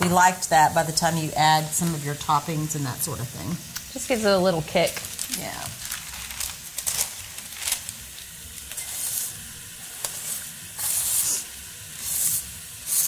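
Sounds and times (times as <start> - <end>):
food sizzling in oil: 0.0 - 13.0
scraping off parchment paper: 5.1 - 8.0.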